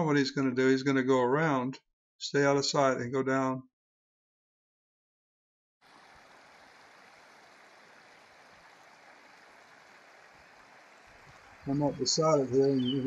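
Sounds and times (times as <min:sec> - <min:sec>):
small stream running water: 0:05.8 - 0:13.0.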